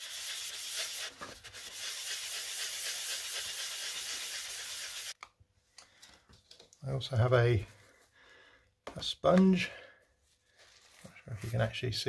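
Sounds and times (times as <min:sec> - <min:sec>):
wet sandpaper rubbing: 0:00.0 - 0:05.2.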